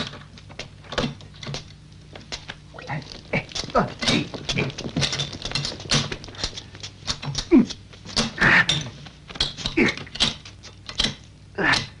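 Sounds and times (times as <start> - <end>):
man groaning in pain: 11.6 - 12.0.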